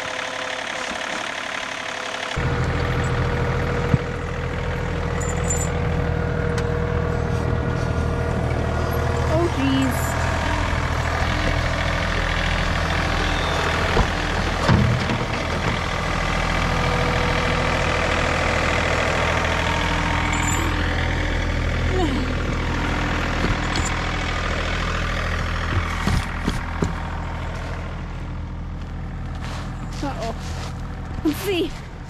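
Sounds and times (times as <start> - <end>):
tractor diesel engine running: 0.0 - 32.0.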